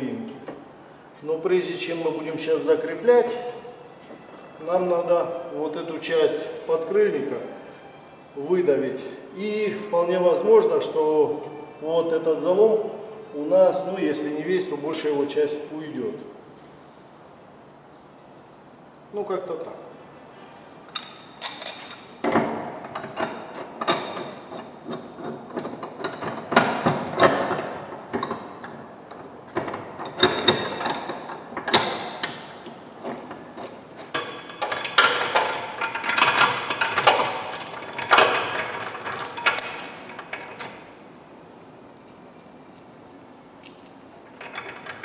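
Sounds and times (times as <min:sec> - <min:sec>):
metal chain jangling: 0:31.7 - 0:41.0, 0:43.1 - 0:45.0.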